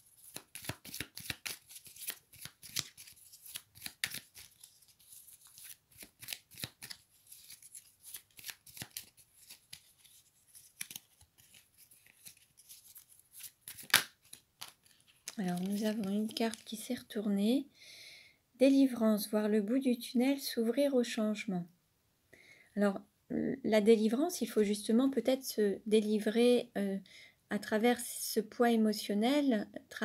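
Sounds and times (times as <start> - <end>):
cards being shuffled: 0.1 - 16.8.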